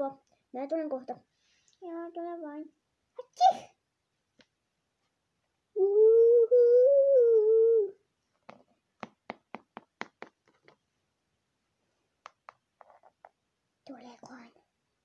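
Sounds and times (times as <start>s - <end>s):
plastic toy tapping on wooden floor: 8.5s - 10.8s.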